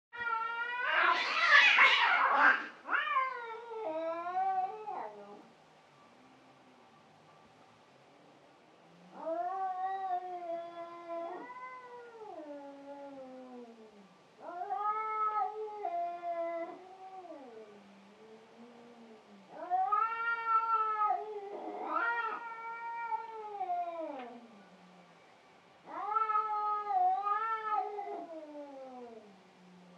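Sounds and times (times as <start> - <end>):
cats fighting and yowling: 0.2 - 5.5, 9.0 - 25.0, 25.8 - 29.9.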